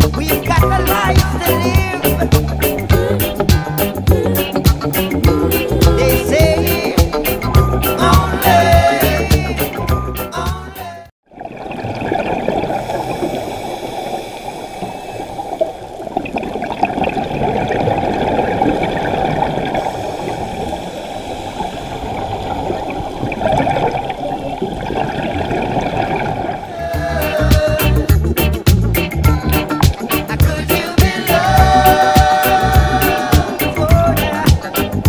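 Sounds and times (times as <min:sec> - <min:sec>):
background music: 0:00.0 - 0:11.1, 0:26.8 - 0:35.0
underwater water rushing: 0:11.2 - 0:26.8.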